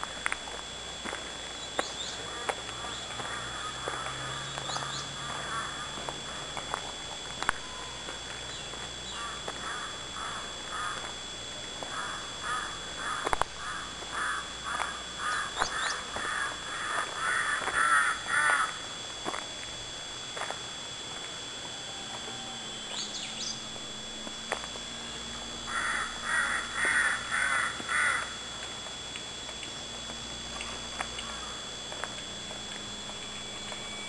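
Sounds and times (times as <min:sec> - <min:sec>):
crow cawing: 0:02.3 - 0:06.5, 0:09.1 - 0:11.1, 0:11.8 - 0:18.8, 0:25.7 - 0:28.5, 0:31.2 - 0:31.7.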